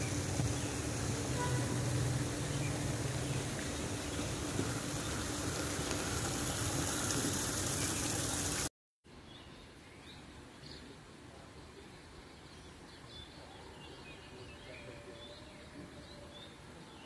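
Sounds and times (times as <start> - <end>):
rushing hiss: 0.0 - 8.7.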